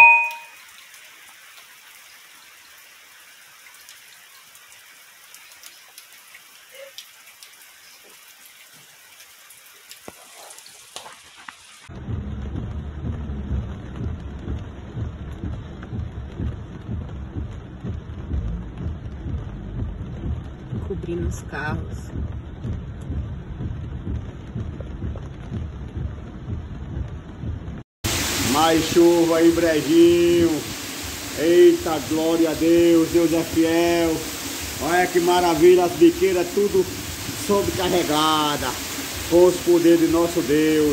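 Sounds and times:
heavy rain on flooded street: 0:00.0 - 0:40.9
rain with drips and taps: 0:00.0 - 0:40.9
strong low rumble: 0:11.9 - 0:29.2.

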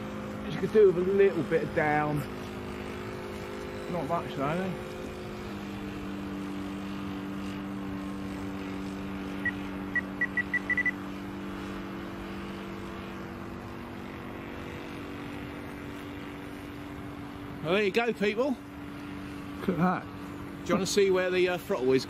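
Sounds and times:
model plane engine droning: 0:00.0 - 0:22.0
short high beeps: 0:09.4 - 0:11.0.

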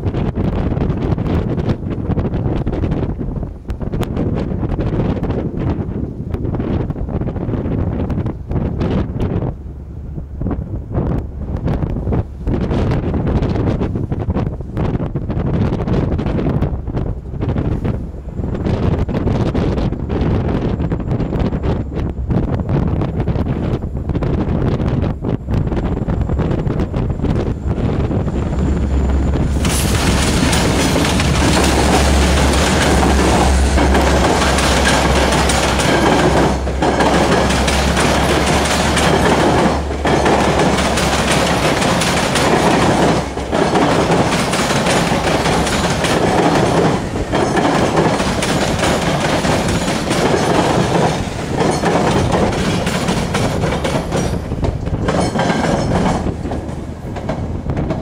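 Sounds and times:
locomotive engine humming: 0:05.6 - 0:58.0
train cars clacking over rail joints: 0:26.6 - 0:58.0.

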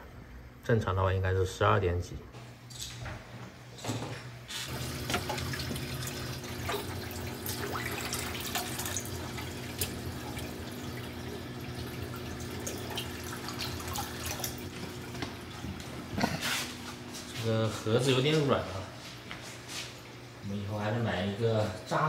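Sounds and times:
water drips: 0:04.7 - 0:15.9
water splashing and trickling: 0:04.7 - 0:16.1.

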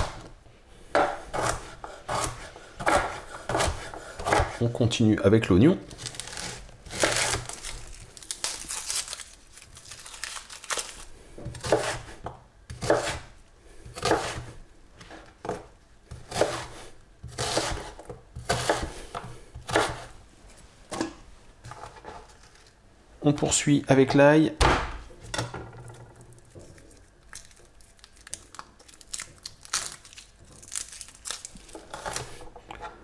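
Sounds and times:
knife chopping on board: 0:01.0 - 0:04.6, 0:11.5 - 0:13.3, 0:14.0 - 0:14.5, 0:15.4 - 0:20.1.

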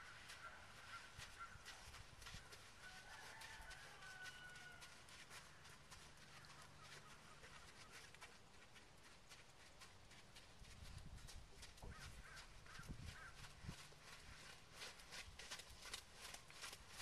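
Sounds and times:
faint outdoor ambience: 0:00.0 - 0:17.0
horse hooves trotting on sand: 0:00.0 - 0:17.0.

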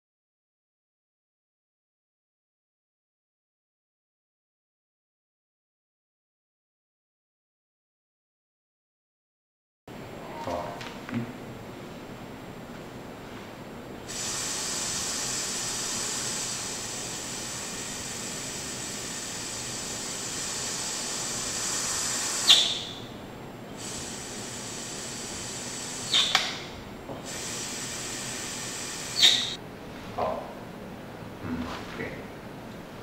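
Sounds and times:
gas hissing: 0:14.1 - 0:23.1, 0:23.7 - 0:29.6
valve clicks: 0:25.7 - 0:26.7.

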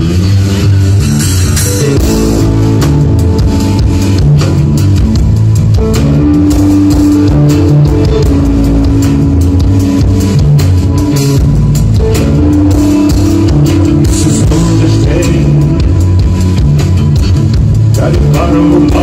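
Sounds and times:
drum kit beat: 0:00.0 - 0:19.0
electric guitar: 0:00.0 - 0:19.0.

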